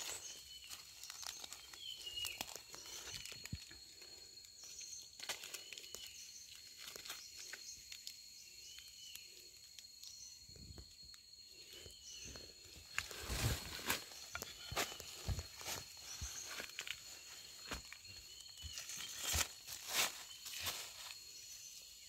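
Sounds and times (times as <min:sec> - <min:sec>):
dry leaves rustling: 0:00.0 - 0:03.8, 0:13.0 - 0:17.9, 0:18.5 - 0:21.3
twigs crackling: 0:00.0 - 0:10.2, 0:12.2 - 0:21.3
high-pitched insect drone: 0:00.0 - 0:22.0.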